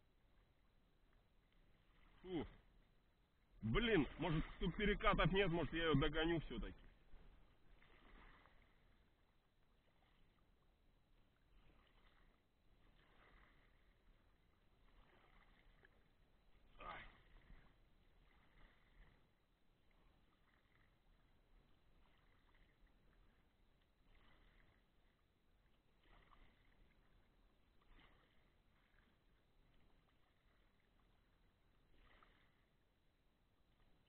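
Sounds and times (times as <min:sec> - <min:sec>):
paddle splashing in water: 0:00.1 - 0:34.0.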